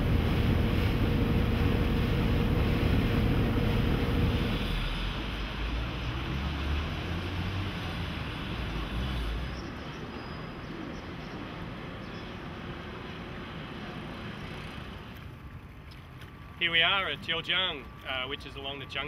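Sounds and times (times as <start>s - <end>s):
low rumbling: 0.0s - 5.4s.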